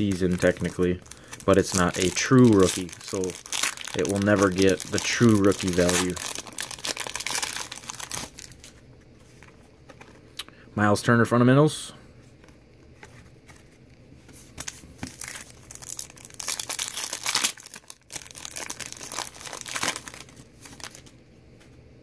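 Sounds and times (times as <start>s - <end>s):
foil wrapper tearing and crinkling: 0.0s - 8.7s, 15.0s - 21.1s.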